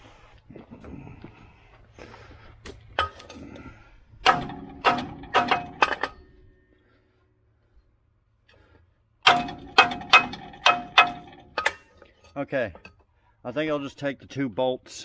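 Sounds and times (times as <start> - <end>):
metal-on-metal clanks: 2.9 - 3.6, 4.2 - 6.6, 9.2 - 13.1.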